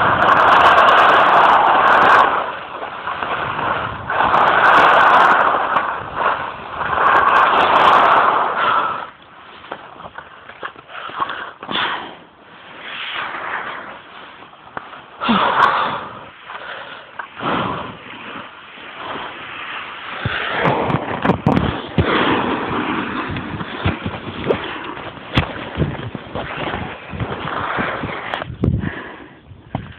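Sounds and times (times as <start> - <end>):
wind on microphone: 0.0 - 10.2, 17.4 - 29.9
skis sliding over snow: 0.0 - 29.9.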